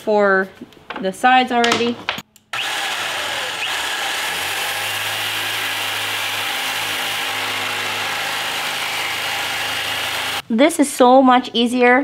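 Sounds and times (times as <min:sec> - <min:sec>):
jigsaw cutting wood: 0:02.6 - 0:10.4.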